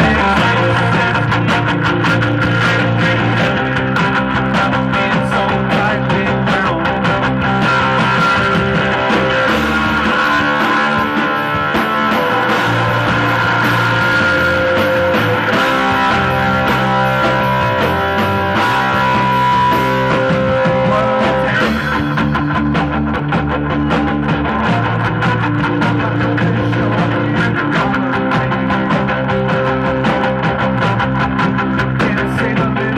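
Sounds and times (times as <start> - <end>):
distorted electric guitar: 0.0 - 32.9
drum kit: 0.0 - 32.9
electric bass: 0.0 - 32.9.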